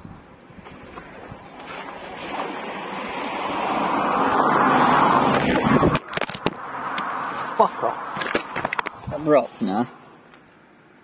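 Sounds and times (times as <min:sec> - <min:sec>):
wind gust rushing: 0:02.7 - 0:06.0.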